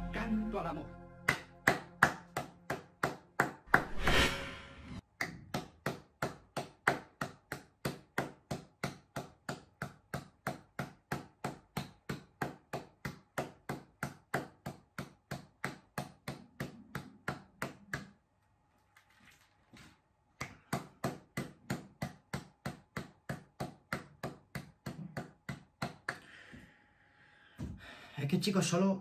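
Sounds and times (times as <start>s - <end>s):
person clapping hands: 1.2s - 4.0s, 5.1s - 18.2s, 20.4s - 26.4s
brief rushing noise: 3.8s - 5.0s.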